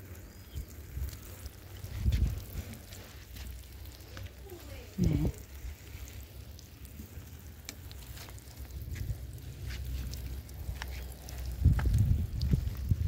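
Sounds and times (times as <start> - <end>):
water pattering from watering can: 0.0 - 13.0
wind rumble on microphone: 0.3 - 3.0, 8.4 - 13.0.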